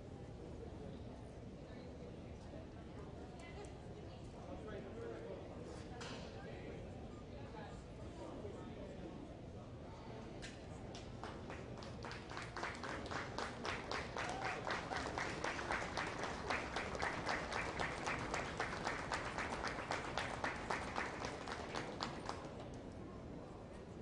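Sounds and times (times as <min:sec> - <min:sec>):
spectators clapping in rhythm: 0:11.2 - 0:22.7.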